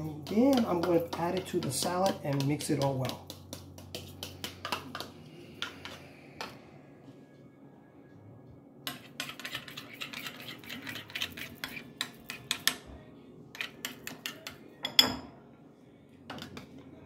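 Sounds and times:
spoon stirring in ceramic bowl: 0:00.0 - 0:06.6, 0:08.8 - 0:15.1.

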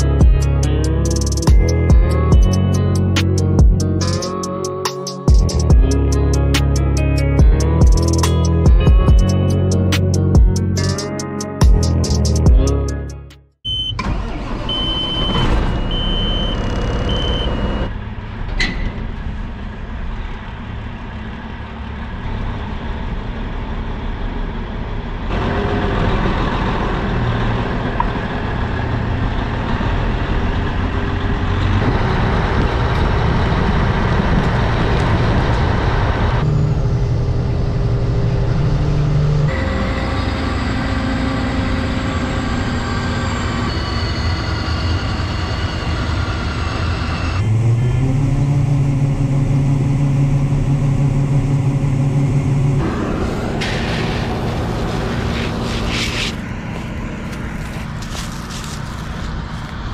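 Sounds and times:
truck diesel engine running: 0:00.0 - 0:13.3, 0:14.0 - 0:59.9
warning buzzer beeping: 0:13.7 - 0:14.0, 0:14.7 - 0:17.8.

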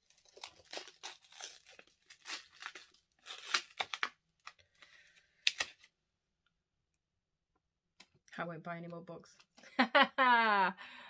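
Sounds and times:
packaging tearing and crinkling: 0:00.0 - 0:04.5, 0:05.4 - 0:05.9.

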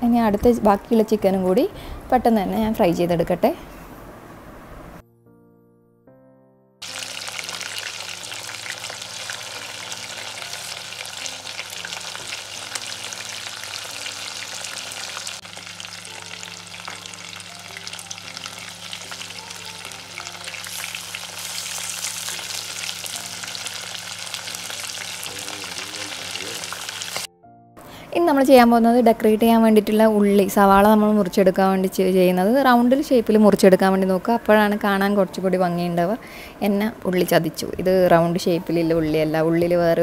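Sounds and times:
chicken sizzling in hot oil: 0:06.8 - 0:27.3.

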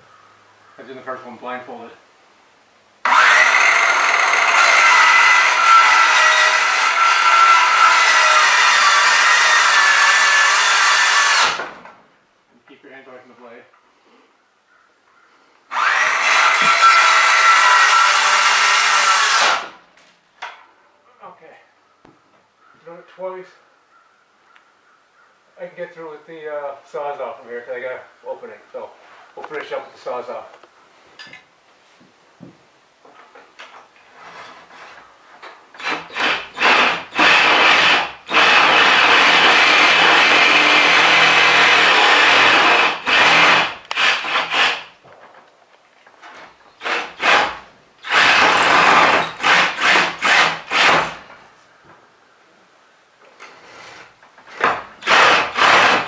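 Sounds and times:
power saw cutting wood: 0:03.0 - 0:11.8, 0:15.7 - 0:19.8, 0:35.8 - 0:44.9, 0:46.8 - 0:51.3, 0:53.6 - 0:56.0.

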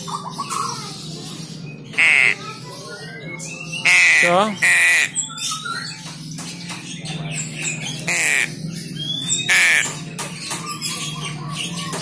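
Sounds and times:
young crow squawking: 0:02.0 - 0:02.6, 0:03.8 - 0:05.3, 0:08.0 - 0:08.6, 0:09.3 - 0:10.0.

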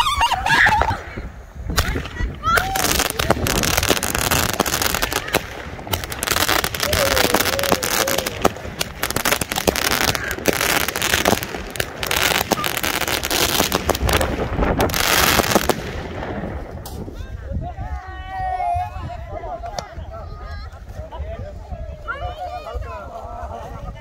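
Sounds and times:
fireworks bangs and crackles: 0:00.0 - 0:17.4
people's voices: 0:00.0 - 0:24.0.

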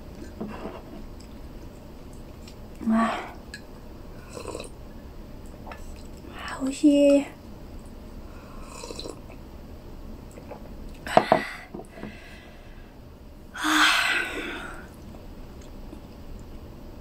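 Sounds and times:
woman exhaling breathily: 0:11.1 - 0:12.9, 0:13.6 - 0:14.9.

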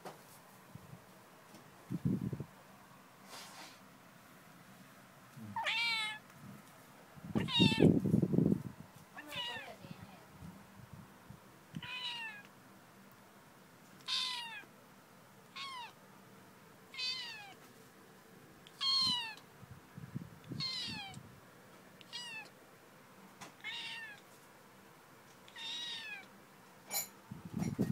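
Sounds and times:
kitten meowing: 0:05.6 - 0:06.2, 0:07.4 - 0:07.9, 0:09.2 - 0:09.8, 0:11.8 - 0:12.5, 0:14.0 - 0:14.7, 0:15.5 - 0:16.0, 0:17.0 - 0:17.6, 0:18.7 - 0:19.4, 0:20.5 - 0:21.2, 0:22.0 - 0:22.5, 0:23.6 - 0:24.2, 0:25.5 - 0:26.3.

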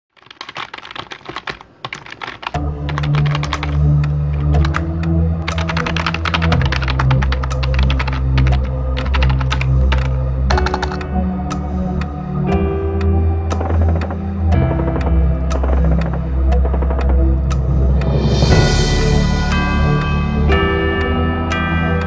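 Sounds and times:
typing key clicks: 0:00.2 - 0:04.8, 0:05.4 - 0:11.1
deep bass music: 0:02.6 - 0:22.0.

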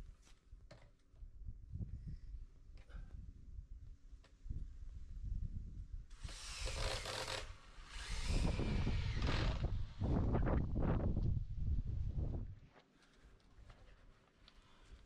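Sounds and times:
cordless drill driving screws: 0:06.1 - 0:10.0.

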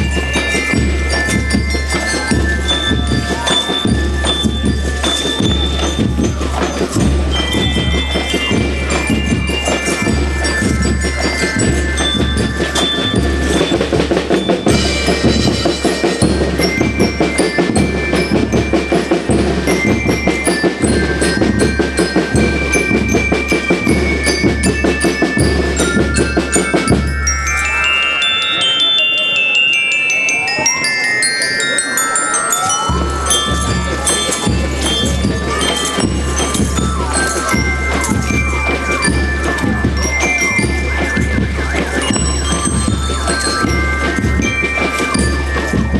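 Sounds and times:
bell lyre melody: 0:00.0 - 0:45.9.

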